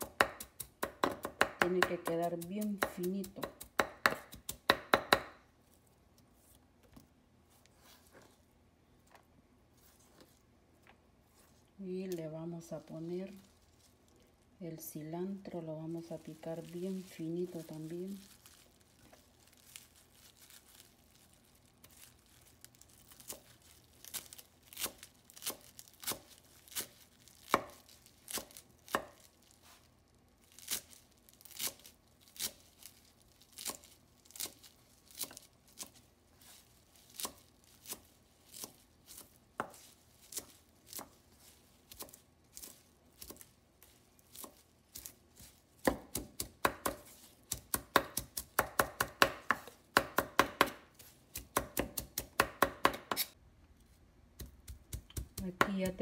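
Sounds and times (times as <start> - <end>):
knife chopping on wooden board: 0.0 - 5.4, 27.5 - 29.3, 37.2 - 41.2, 45.8 - 53.4, 54.4 - 56.0.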